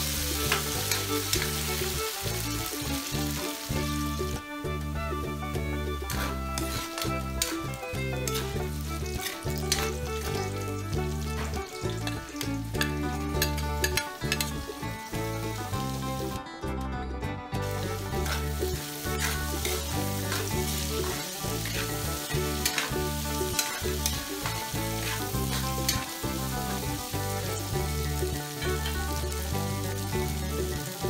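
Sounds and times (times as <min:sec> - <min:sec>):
food sizzling in oil: 0:00.0 - 0:16.4, 0:17.6 - 0:31.0
background music with bass line: 0:00.0 - 0:31.0
metal spatula scraping a wok: 0:06.0 - 0:14.7, 0:17.6 - 0:26.8.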